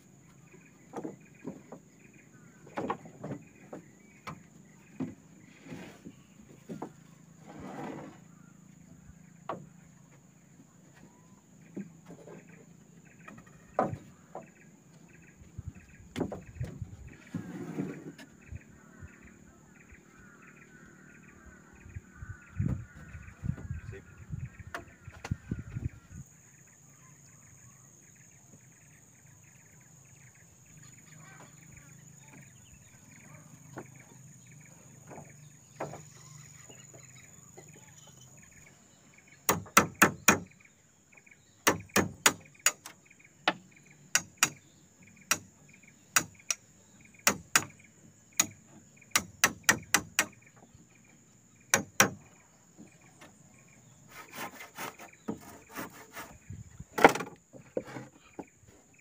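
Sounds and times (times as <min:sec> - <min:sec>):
forest ambience: 0:00.0 - 0:59.0
insects droning: 0:00.0 - 0:59.0
tool knocking on wood: 0:41.7 - 0:42.8, 0:48.4 - 0:50.4.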